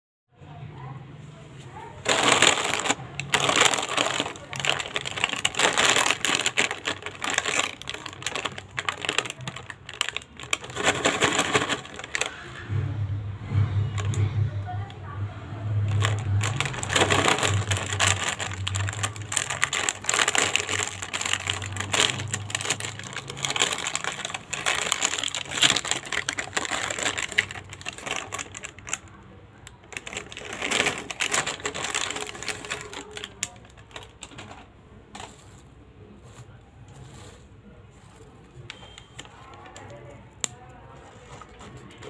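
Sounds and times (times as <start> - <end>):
snack packet crinkling: 2.0 - 12.5, 15.8 - 34.5.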